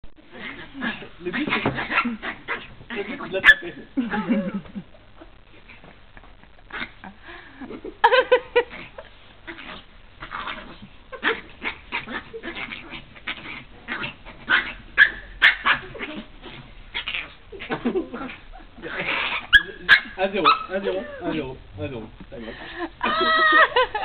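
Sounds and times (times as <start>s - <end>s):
small dog yapping: 9.5s - 18.4s, 19.0s - 20.8s.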